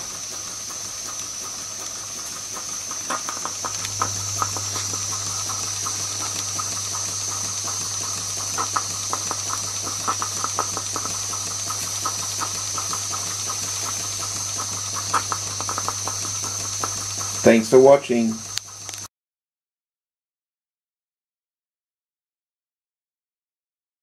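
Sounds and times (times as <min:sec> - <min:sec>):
low steady hum: 0:00.0 - 0:19.0
steam hissing: 0:00.0 - 0:19.1
toy steam engine ticking over: 0:00.0 - 0:19.1.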